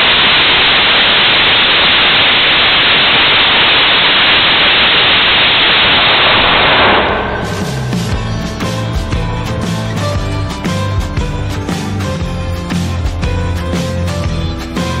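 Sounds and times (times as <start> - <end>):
rocket engine roar: 0.0 - 10.2.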